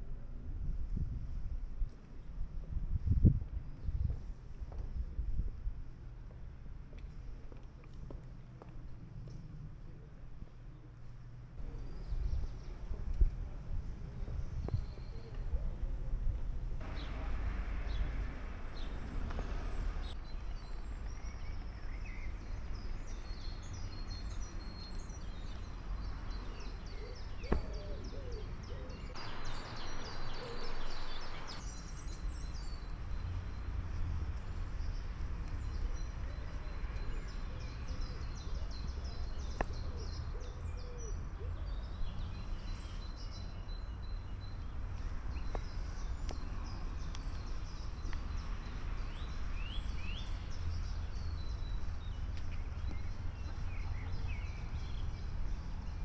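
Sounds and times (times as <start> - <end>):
songbirds chirping and singing: 16.8 - 33.7, 34.4 - 56.0.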